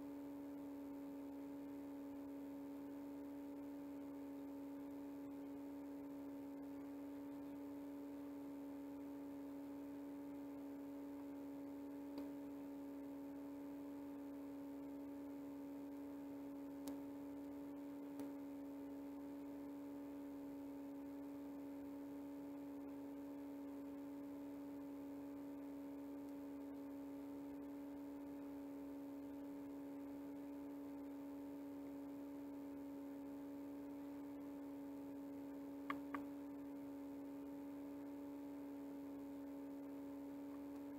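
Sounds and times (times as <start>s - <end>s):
electrical hum: 0.0s - 40.9s
faint clicks: 12.1s - 12.4s, 16.8s - 17.0s, 35.8s - 36.3s.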